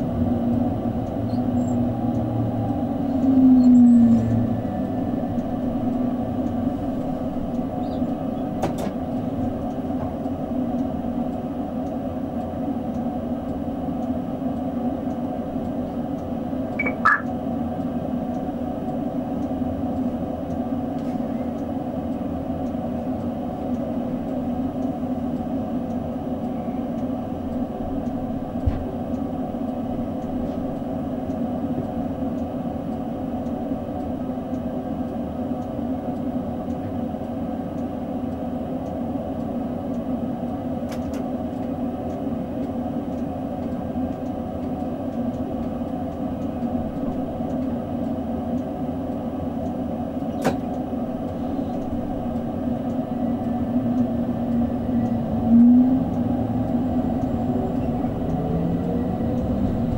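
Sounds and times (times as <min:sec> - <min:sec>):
electrical hum in train cab: 0:00.0 - 0:59.9
short high chirp: 0:16.8 - 0:17.3.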